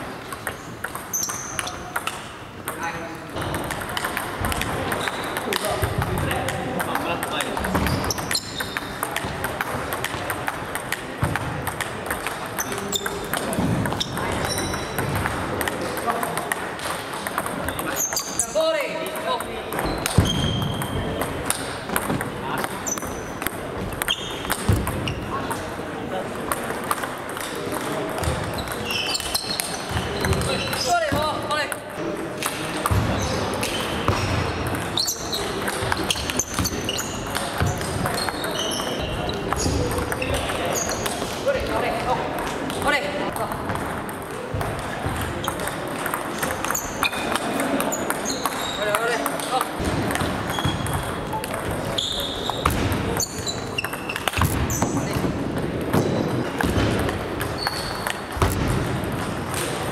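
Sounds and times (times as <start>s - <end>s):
shoes squeaking on floor: 0.0s - 1.9s, 4.8s - 5.8s, 7.4s - 9.3s, 12.4s - 15.2s, 17.7s - 18.7s, 19.7s - 21.8s, 22.6s - 23.4s, 24.0s - 25.6s, 28.2s - 31.3s, 32.9s - 41.9s, 44.5s - 55.3s, 57.3s - 58.6s
table tennis balls clicking: 0.0s - 59.9s.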